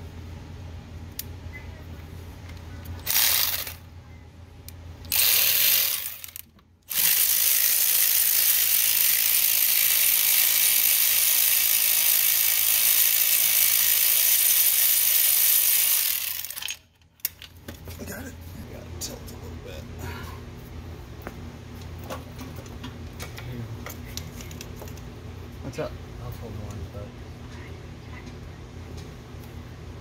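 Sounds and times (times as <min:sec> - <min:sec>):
power ratchet spinning bolts: 0:03.0 - 0:03.8, 0:05.1 - 0:16.8.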